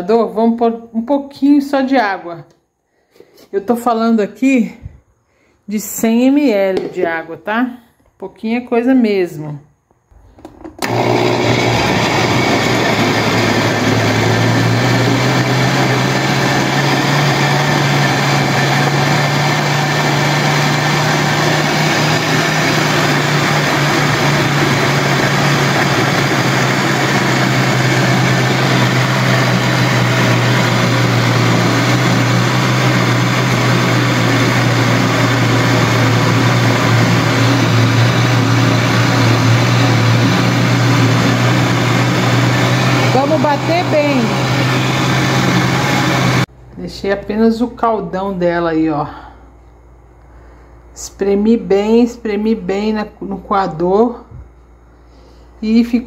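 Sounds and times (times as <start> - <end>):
blender motor running: 10.4 - 46.5.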